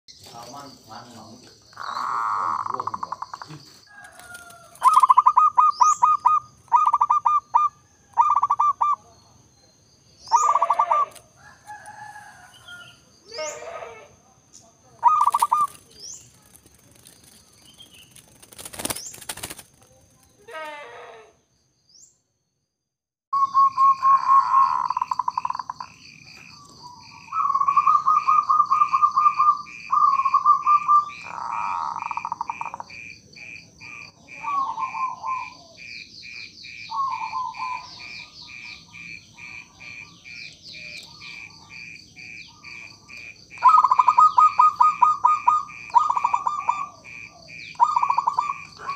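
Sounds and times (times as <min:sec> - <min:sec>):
high insect-like whine: 0:00.1 - 0:20.7, 0:23.4 - 0:48.8
birds chirping: 0:00.1 - 0:22.6, 0:23.3 - 0:48.9
dove cooing: 0:01.8 - 0:09.0, 0:10.3 - 0:11.2, 0:15.0 - 0:17.2, 0:23.4 - 0:25.9, 0:26.8 - 0:33.6, 0:34.2 - 0:48.9
short bird calls: 0:10.2 - 0:11.2.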